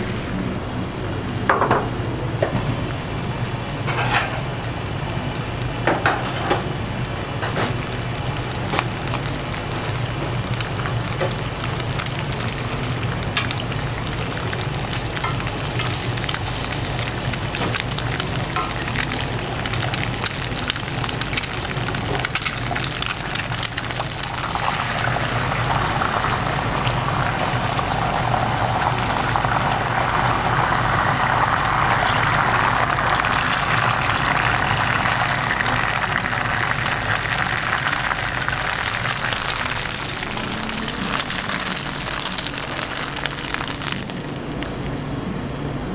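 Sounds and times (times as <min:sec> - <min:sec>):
egg sizzling in a frying pan: 0:02.8 - 0:45.0.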